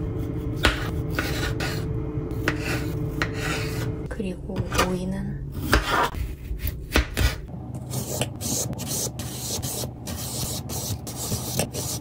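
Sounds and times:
knife rasping through cucumber: 5.6s - 12.0s.

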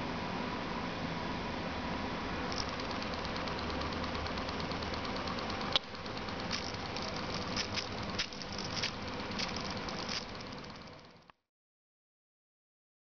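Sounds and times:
small electric motor whirring: 2.5s - 11.3s.

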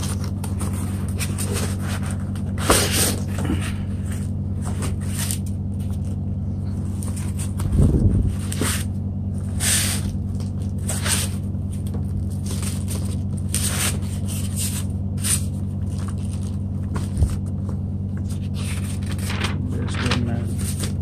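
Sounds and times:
steady low hum: 0.0s - 21.0s
plastic wrap and paper crinkling: 10.0s - 21.0s.

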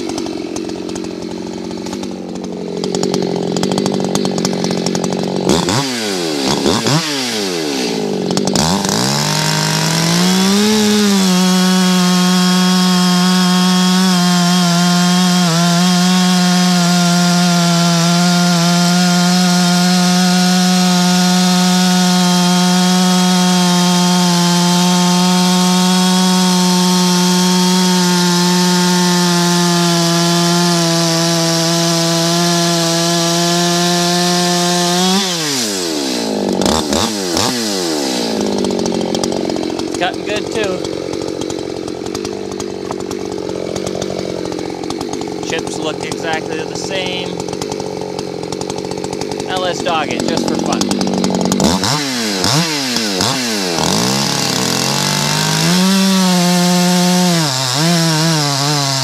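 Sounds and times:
chainsaw cutting log at full throttle: 0.0s - 59.0s.

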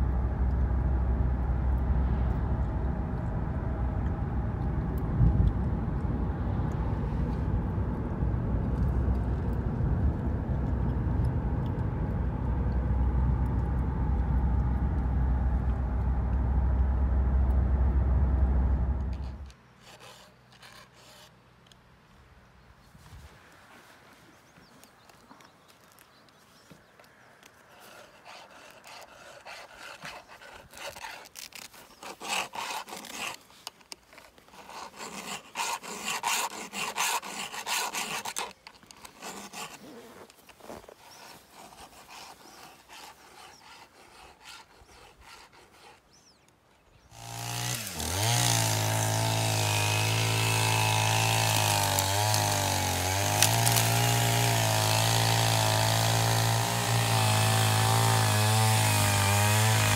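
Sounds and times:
file rasping on chainsaw chain: 19.8s - 21.4s, 27.6s - 40.4s, 41.0s - 46.4s, 47.1s - 59.9s
chainsaw engine running: 47.1s - 59.9s.

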